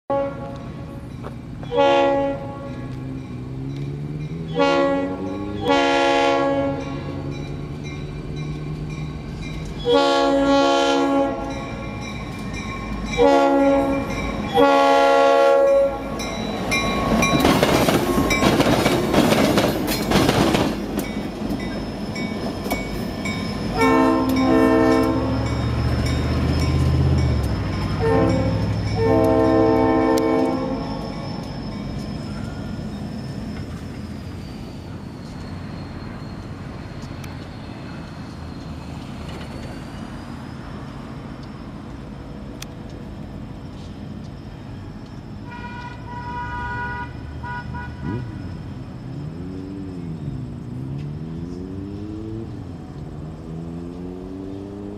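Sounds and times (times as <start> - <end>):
locomotive horn blasts: 0.1 - 1.0, 1.7 - 3.0, 4.5 - 7.2, 9.8 - 11.9, 13.1 - 16.3, 23.7 - 25.6, 28.0 - 31.0, 45.4 - 48.6
train wheels clattering: 16.1 - 40.2.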